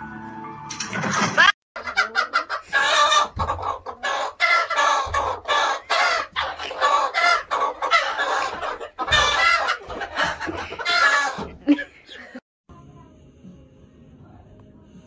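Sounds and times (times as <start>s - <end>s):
chickens squawking and clucking: 1.1s - 12.4s.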